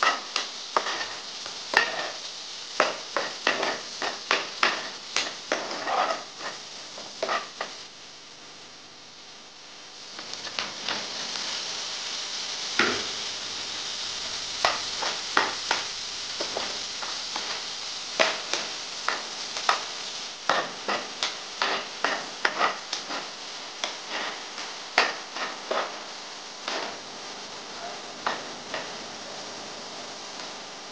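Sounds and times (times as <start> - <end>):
metal spatula scraping pan: 0.0 - 2.2, 2.8 - 7.7, 20.5 - 23.3, 24.0 - 26.0
vegetables sizzling in frying pan: 0.0 - 30.9.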